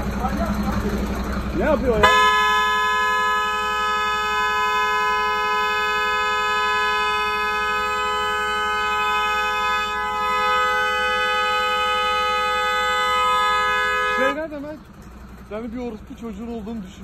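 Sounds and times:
car horn held down: 2.0 - 14.4.

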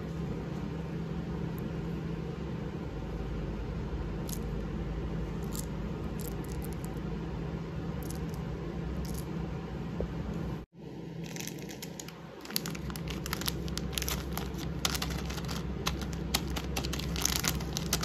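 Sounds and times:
low hum with faint hiss: 0.0 - 18.0
candies clicking in a hand: 11.6 - 18.0.

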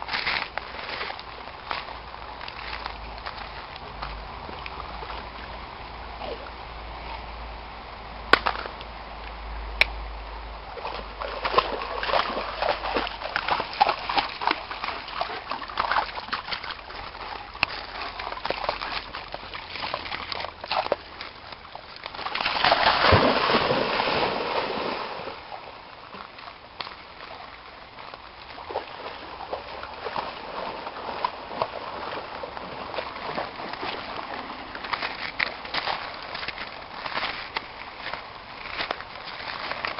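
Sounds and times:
dog splashing through water: 10.8 - 25.6, 26.8 - 39.9.

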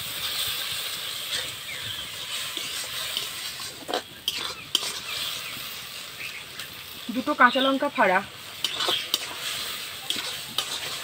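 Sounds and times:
paste sizzling in oil: 0.0 - 11.0
spatula scraping metal pan: 1.2 - 5.8, 8.4 - 11.0.

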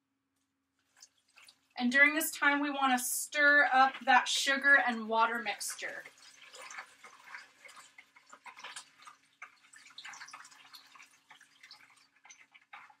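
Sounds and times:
water trickling into a bowl: 0.8 - 13.0.

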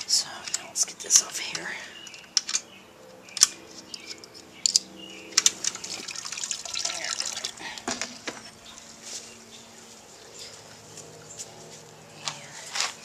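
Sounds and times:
binder clips clicking: 2.0 - 5.8
liquid splashing and draining: 5.5 - 8.3.

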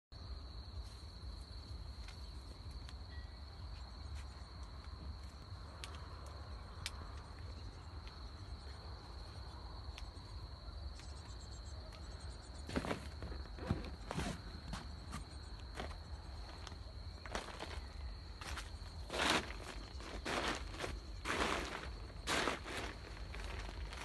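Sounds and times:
crickets chirring: 0.2 - 24.0.

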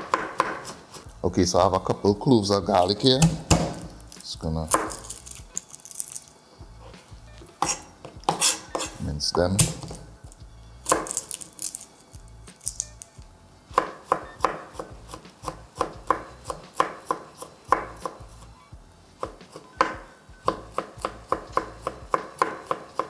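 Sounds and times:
knife chopping on wooden board: 0.0 - 1.0, 3.2 - 4.0, 4.7 - 5.1, 7.6 - 9.0, 9.6 - 10.0, 10.9 - 11.4, 13.8 - 18.5, 19.2 - 23.0.

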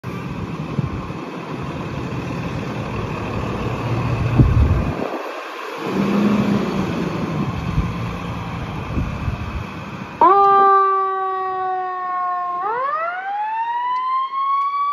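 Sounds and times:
fire engine diesel engine revving: 0.0 - 10.2.

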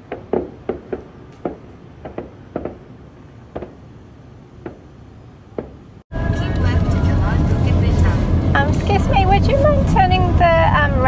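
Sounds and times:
distant fireworks pops and bangs: 0.0 - 3.8, 4.6 - 4.9, 5.5 - 5.8
faint background rumble: 0.0 - 11.0.

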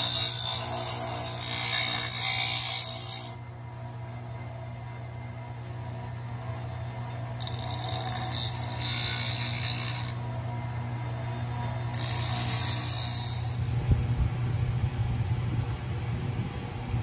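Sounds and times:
bench grinder motor hum: 0.0 - 3.4, 7.4 - 10.3, 11.9 - 13.8
steel grinding on wheel: 0.0 - 3.4, 7.4 - 10.2, 11.9 - 13.8.

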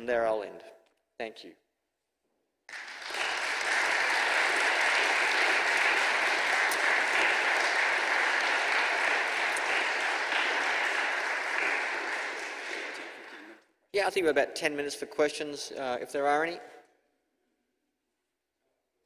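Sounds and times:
audience applauding: 2.7 - 13.6.

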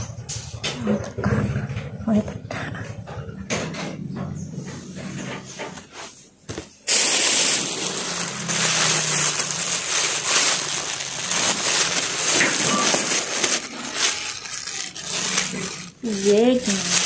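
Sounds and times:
plastic bag crinkling: 6.8 - 17.0.

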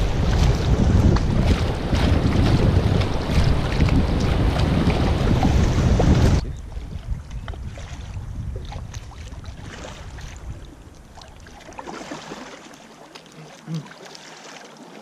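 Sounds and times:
wind rumble on microphone: 0.0 - 11.5
canoe paddles dipping: 0.0 - 15.0
water splashing and lapping: 0.0 - 15.0.

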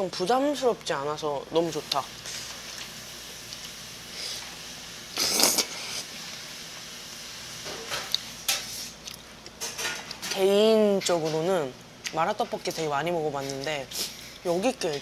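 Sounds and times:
loud slurp: 5.2 - 6.1
quiet chewing: 8.0 - 8.3, 9.0 - 10.2.

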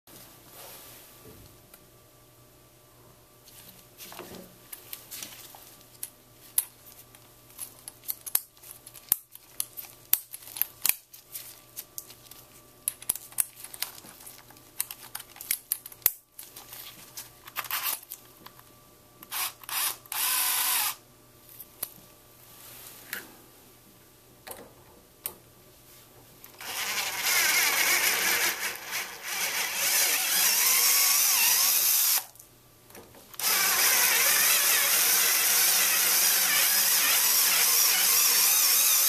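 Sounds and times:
cordless power drill running: 19.3 - 21.0, 26.6 - 32.3, 33.4 - 39.0.

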